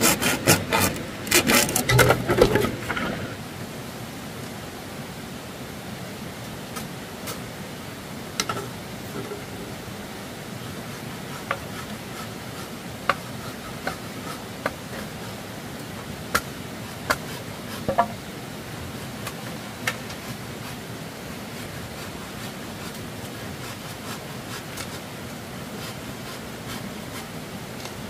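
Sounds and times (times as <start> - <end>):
steady background hiss: 0.0 - 28.0.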